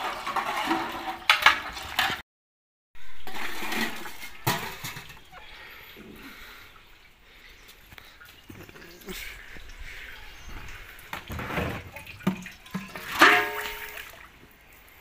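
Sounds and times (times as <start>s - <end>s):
tap water splashing into tub: 11.0s - 14.3s
steel utensils clanking: 12.8s - 14.0s.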